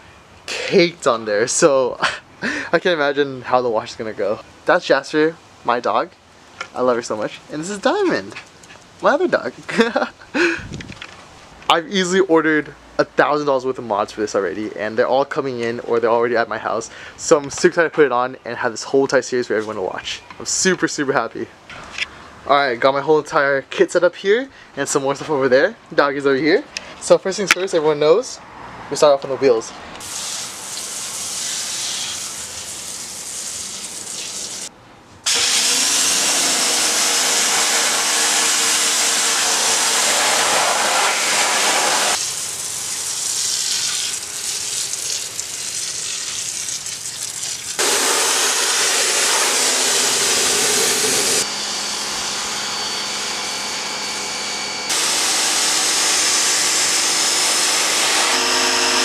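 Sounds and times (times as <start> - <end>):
pressure washer jetting: 30.0 - 34.7, 35.3 - 51.4, 54.9 - 59.0
hand sprayer misting: 35.3 - 42.5, 47.8 - 51.4
motor hum: 47.8 - 59.0.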